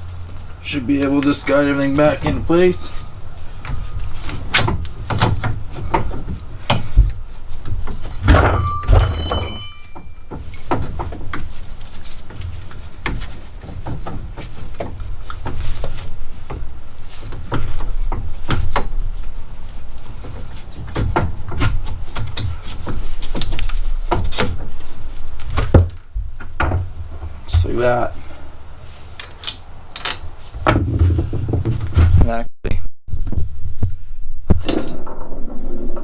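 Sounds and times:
metal knocks and clunks: 0:03.6 - 0:11.5, 0:20.2 - 0:24.8, 0:25.5 - 0:28.0, 0:29.2 - 0:32.2
ringing metal clang: 0:08.2 - 0:11.6.

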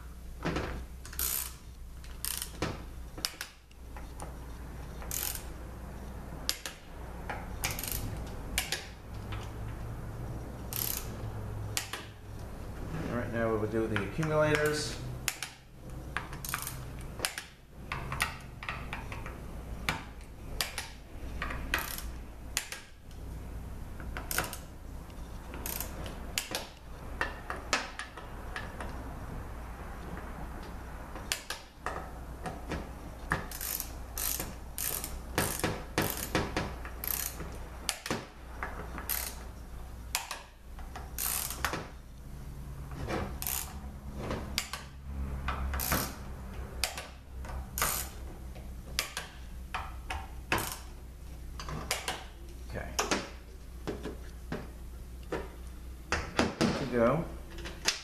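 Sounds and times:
hand ratchet clicking: 0:01.0 - 0:02.6, 0:05.0 - 0:05.5, 0:06.5 - 0:06.8, 0:07.6 - 0:09.4, 0:10.7 - 0:11.2, 0:11.8 - 0:12.1, 0:16.2 - 0:19.3, 0:20.6 - 0:22.9, 0:24.2 - 0:24.7, 0:25.5 - 0:28.9, 0:33.3 - 0:38.2, 0:39.0 - 0:39.4, 0:40.1 - 0:41.8, 0:43.4 - 0:43.8, 0:45.7 - 0:46.2, 0:46.8 - 0:48.2, 0:49.0 - 0:50.9.

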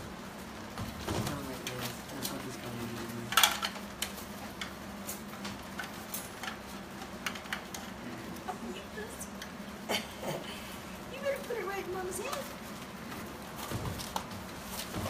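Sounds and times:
crackling rustle: 0:00.0 - 0:09.8, 0:10.6 - 0:15.0
light clicks and clatter: 0:00.8 - 0:08.5.

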